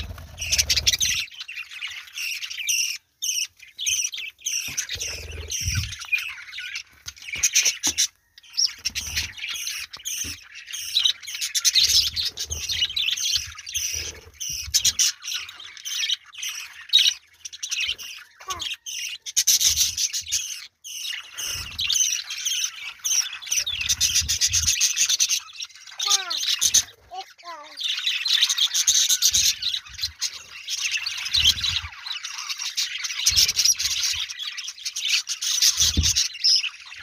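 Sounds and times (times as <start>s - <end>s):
budgerigars chattering and chirping: 0.0s - 37.0s.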